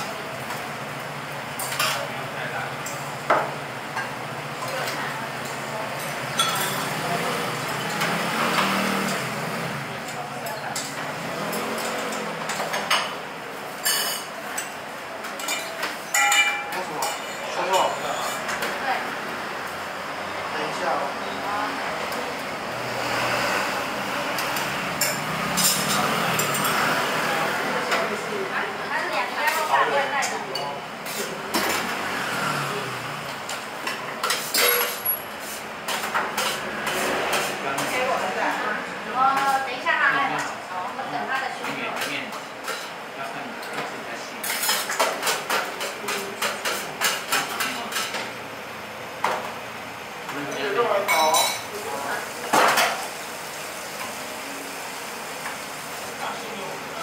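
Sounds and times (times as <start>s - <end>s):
road traffic noise: 0.0s - 57.0s
tableware clinking: 6.0s - 7.0s, 15.3s - 18.7s, 33.9s - 35.3s, 50.5s - 51.7s.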